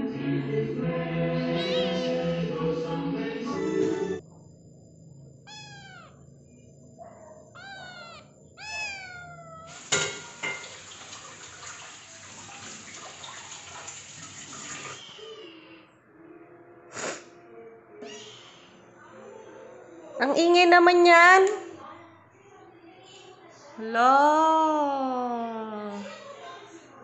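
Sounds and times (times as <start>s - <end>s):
kitten meowing: 1.6s - 2.0s, 5.5s - 6.2s, 7.5s - 9.8s.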